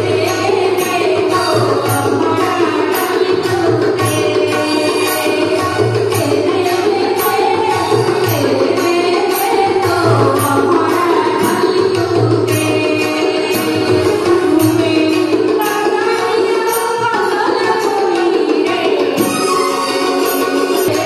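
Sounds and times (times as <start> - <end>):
tabla-like drums: 0.0 - 21.0.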